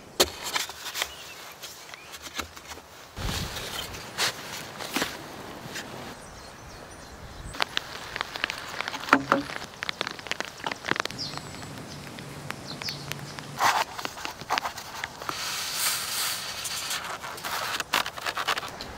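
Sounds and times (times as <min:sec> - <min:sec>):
footsteps on dirt: 0:07.6 - 0:15.4
plastic pipe clicks and knocks: 0:08.9 - 0:10.0.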